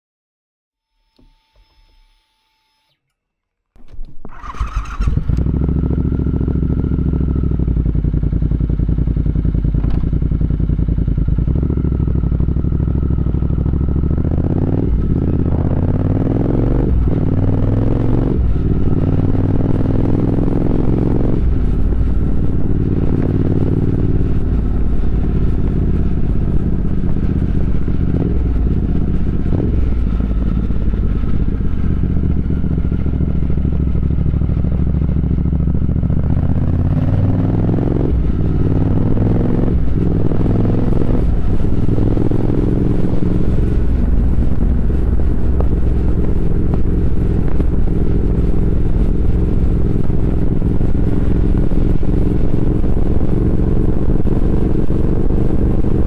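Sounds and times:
motorcycle engine cranking: 3.8 - 5.6
motorcycle engine idling and revving: 3.8 - 56.0.

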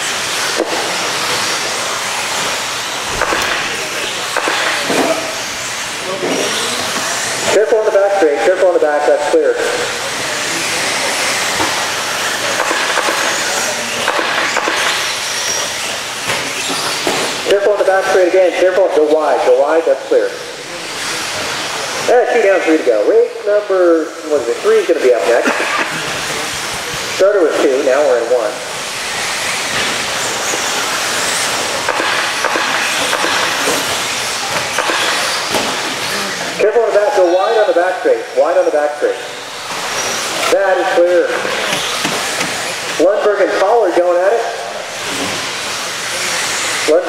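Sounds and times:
high-pitched motor whines: 0.0 - 23.5, 24.1 - 47.0
whirring motors and tyres on dirt: 28.8 - 36.6.

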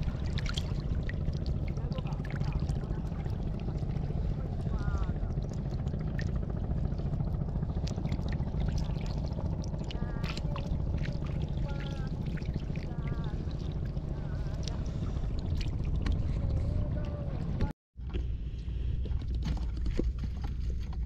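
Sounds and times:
fish splashing in shallow water: 0.0 - 16.5
steady low rumble: 0.0 - 21.0.

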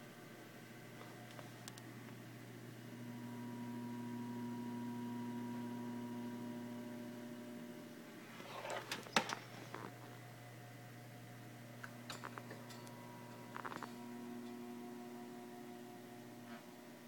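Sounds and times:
computer case humming: 0.0 - 17.0
computer case handling clicks: 8.7 - 9.5.

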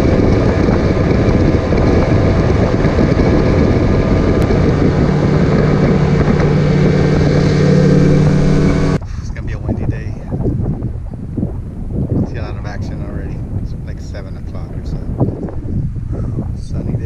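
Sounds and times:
rush of boat wake: 0.0 - 9.6
outboard motor running: 0.0 - 13.3
wind buffeting microphone: 0.0 - 17.0.

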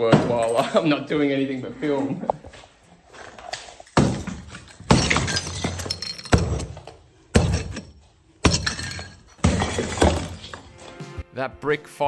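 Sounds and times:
clatter of breaking brick: 3.9 - 10.7
sledgehammer striking brick: 4.0 - 10.7.

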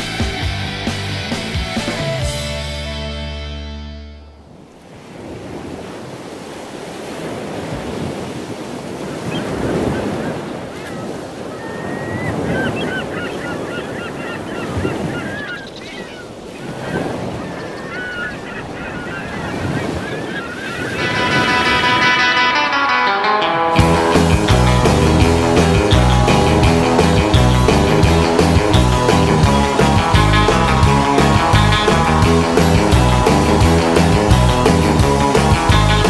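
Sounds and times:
ocean surf breaking on beach: 4.5 - 36.0
birds chirping: 9.2 - 23.0, 23.8 - 36.0.

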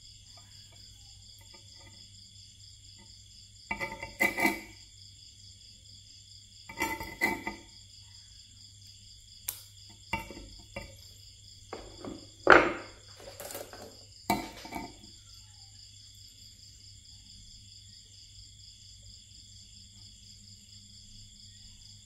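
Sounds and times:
insect chirring: 0.0 - 22.0
pliers clicking on wire: 9.4 - 9.7
pliers tapping on concrete: 9.4 - 11.0, 11.7 - 14.9.

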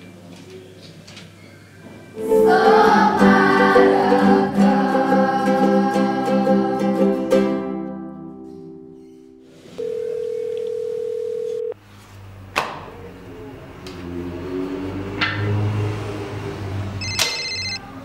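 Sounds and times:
electronic phone ringtone: 9.8 - 11.8, 17.0 - 17.8
telephone dial tone: 9.8 - 11.8, 17.0 - 17.8.

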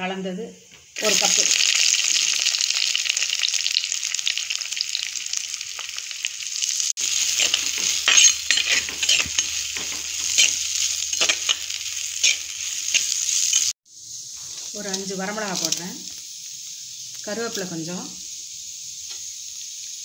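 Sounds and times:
onions sizzling in oil: 0.7 - 20.0
metal spatula scraping pot: 7.0 - 13.7.

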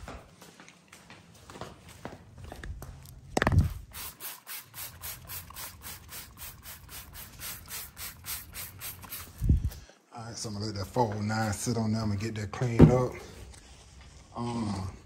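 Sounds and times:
spray bottle hissing: 3.6 - 9.8
thump: 12.8 - 13.1.

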